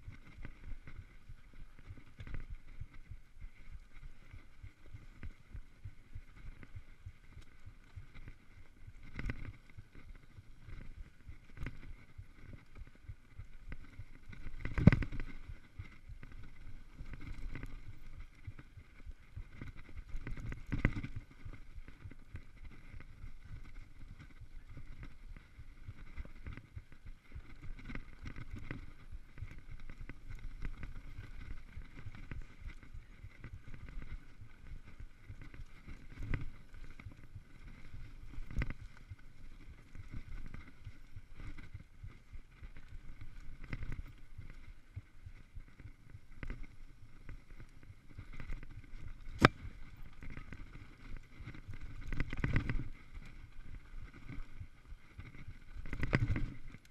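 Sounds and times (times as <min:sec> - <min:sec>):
mountain bike rattling over bumps: 0:04.1 - 0:44.6.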